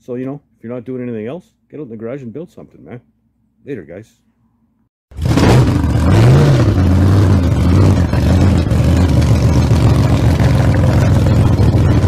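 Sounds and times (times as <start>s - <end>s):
loud engine running: 5.1s - 12.0s.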